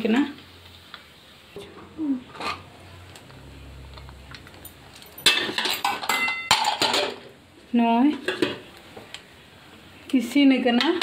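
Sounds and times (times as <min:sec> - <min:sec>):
metal utensils clattering on pot: 0:01.6 - 0:02.7, 0:04.5 - 0:07.3, 0:08.0 - 0:08.7.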